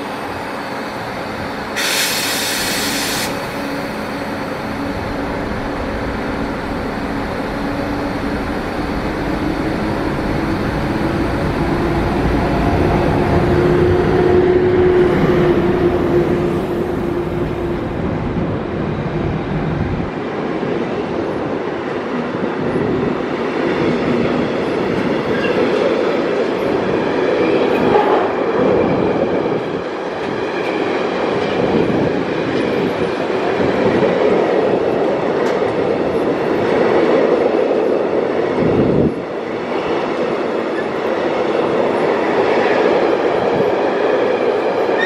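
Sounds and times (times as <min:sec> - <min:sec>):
electric locomotive tone: 0:00.0 - 0:18.9
train wheels rushing on rail: 0:00.0 - 0:45.0.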